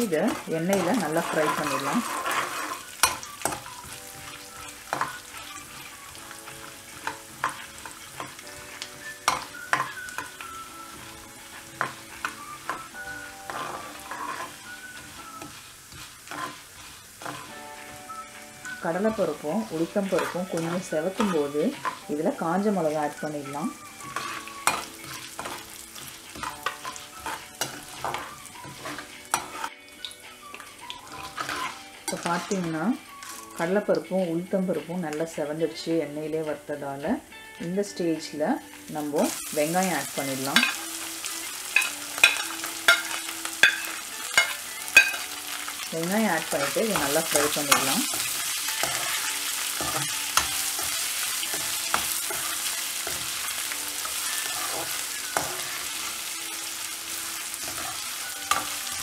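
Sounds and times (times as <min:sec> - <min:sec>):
spatula stirring: 0:00.0 - 0:33.6, 0:41.7 - 0:56.2, 0:57.3 - 0:59.0
lentils sizzling in hot oil: 0:00.0 - 0:59.0.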